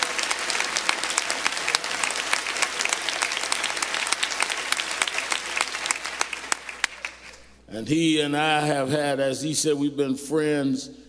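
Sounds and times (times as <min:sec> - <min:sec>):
congregation applauding: 0:00.0 - 0:07.6.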